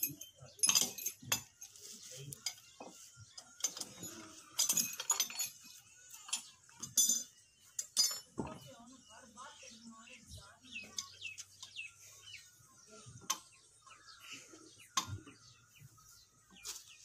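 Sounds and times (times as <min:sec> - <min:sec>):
metal tools clinking on wheel rim: 0:00.0 - 0:08.6.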